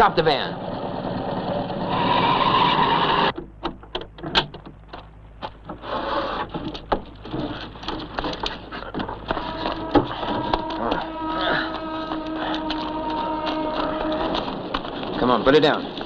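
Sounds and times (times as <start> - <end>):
van brakes squealing: 1.8 - 3.3, 9.3 - 14.6.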